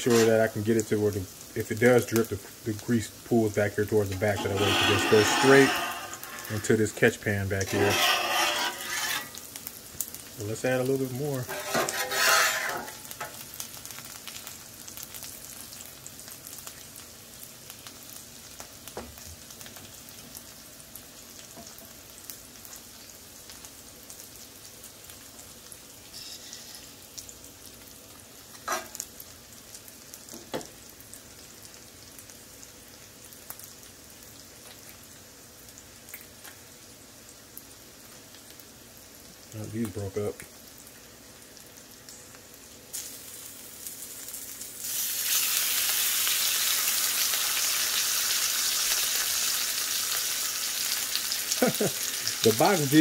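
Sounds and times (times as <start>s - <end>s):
bacon sizzling on a griddle: 0.0s - 53.0s.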